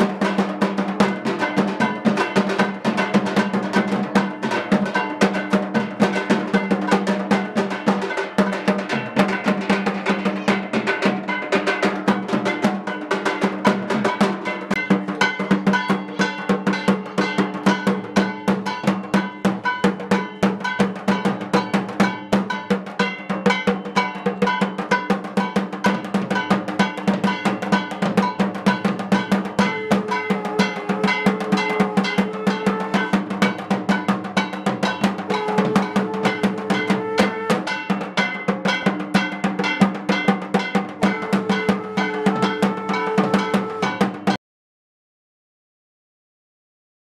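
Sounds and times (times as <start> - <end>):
drum struck with stick: 0.0 - 44.4
hand drum: 0.0 - 44.4
conch shell blown: 29.6 - 33.6, 35.3 - 37.9, 41.0 - 44.2.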